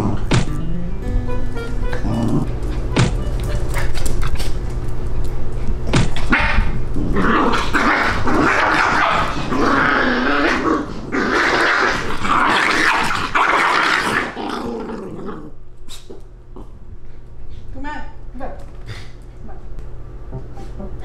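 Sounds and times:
dogs growling: 0.0s - 0.7s, 2.0s - 2.9s, 3.7s - 16.8s.

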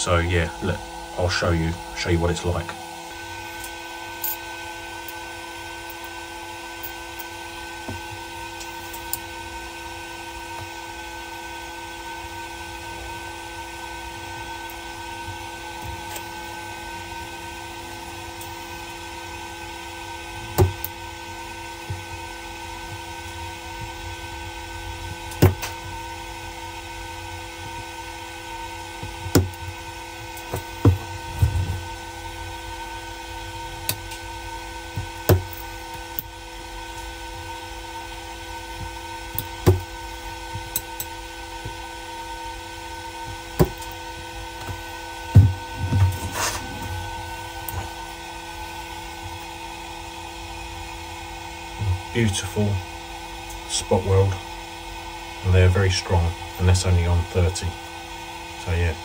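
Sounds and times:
steady hum with tones: 0.0s - 59.0s
spot welder sharp snaps: 39.3s - 39.9s.

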